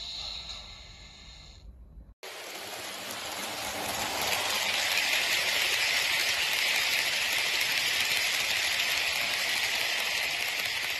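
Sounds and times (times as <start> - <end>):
model train wheels rattling: 2.2 - 10.9.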